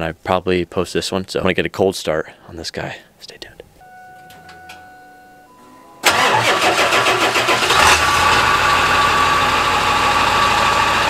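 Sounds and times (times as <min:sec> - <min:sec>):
diesel engine starting and idling: 0:06.0 - 0:11.0.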